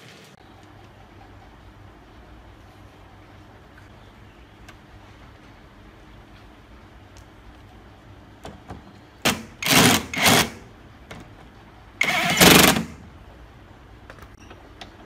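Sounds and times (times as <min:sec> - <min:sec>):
impact driver running: 0:09.3 - 0:10.6, 0:12.0 - 0:13.0.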